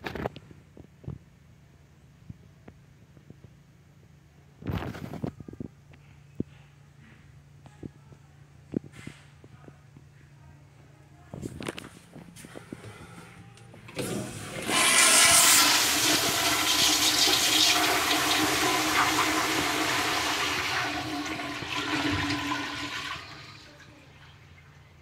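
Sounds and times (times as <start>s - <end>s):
toilet flushing: 13.9s - 25.0s.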